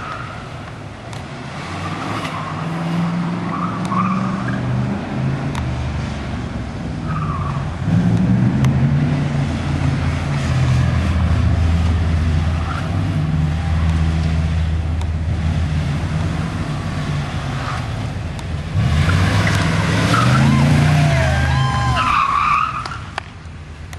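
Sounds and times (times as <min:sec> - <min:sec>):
tyres squealing: 0:19.0 - 0:23.1.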